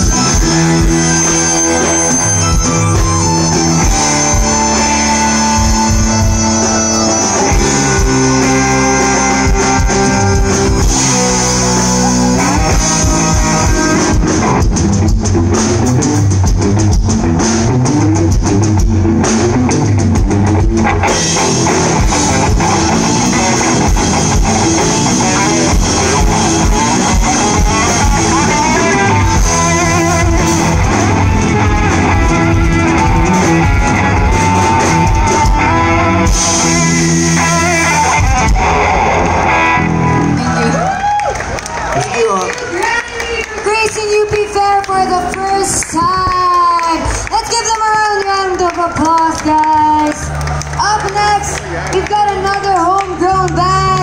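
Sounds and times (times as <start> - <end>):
drum kit beat: 0.0 - 40.3
electric guitars and bass: 0.0 - 54.0.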